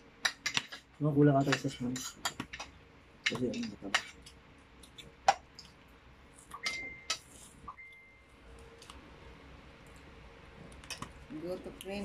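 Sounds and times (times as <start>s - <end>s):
high ringing tone: 6.6s - 8.4s.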